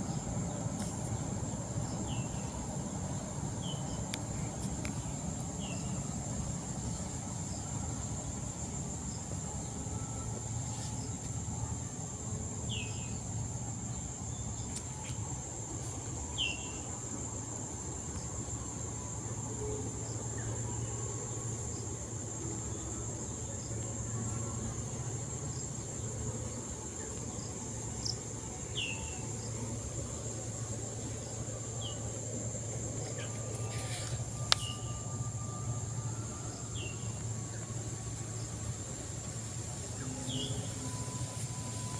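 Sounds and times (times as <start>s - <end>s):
insects droning: 0.0s - 41.9s
low steady hum: 0.0s - 41.9s.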